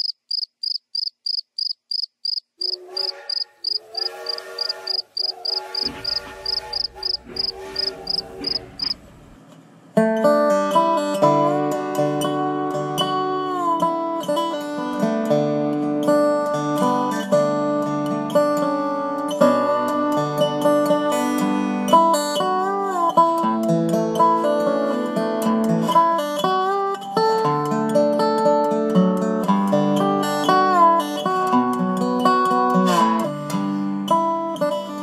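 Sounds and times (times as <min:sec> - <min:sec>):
rapid insect chirping: 0:00.0 - 0:09.0.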